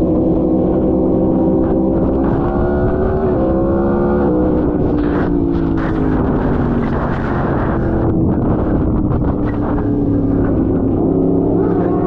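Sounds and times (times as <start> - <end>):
motorcycle engine revving: 0.0 - 12.0
wind rush on microphone: 0.0 - 12.0.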